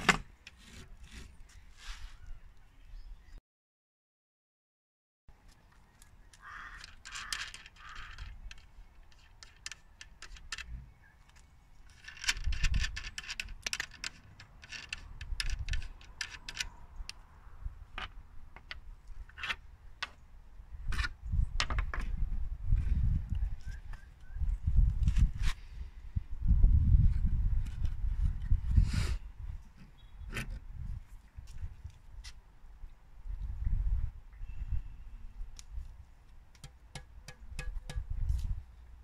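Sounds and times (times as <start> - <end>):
small metallic clicks and rattles: 6.4 - 17.2.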